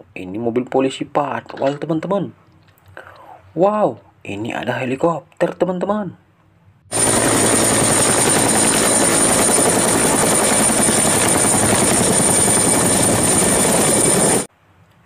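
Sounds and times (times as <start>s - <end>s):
helicopter rotor chop: 6.9s - 14.5s
turbine whine: 6.9s - 14.5s.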